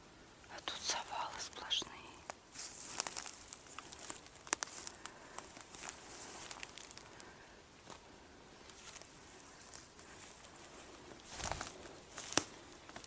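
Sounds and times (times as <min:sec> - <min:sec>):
footsteps on leaf litter: 0:02.5 - 0:07.0, 0:11.2 - 0:13.0
dry twigs snapping: 0:02.6 - 0:07.3, 0:11.2 - 0:13.0.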